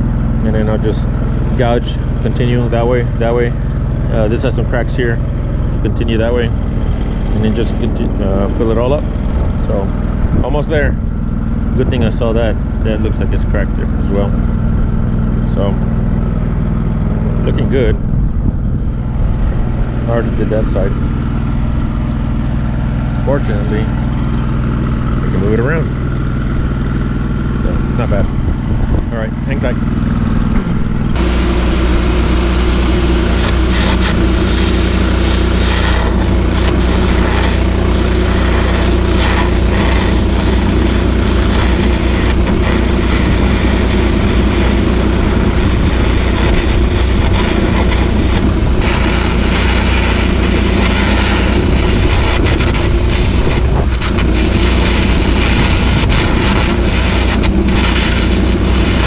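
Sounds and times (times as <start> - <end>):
welding machine engine hum: 0.0 - 59.0
welding arc crackling and hissing: 31.2 - 59.0.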